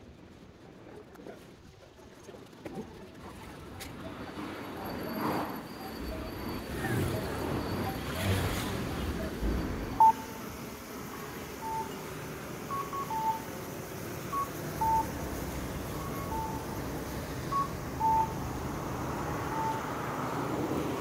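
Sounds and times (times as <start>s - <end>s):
steady background noise: 0.0s - 21.0s
two-pitch electronic beeps: 9.2s - 10.4s, 11.6s - 13.6s, 14.2s - 20.5s.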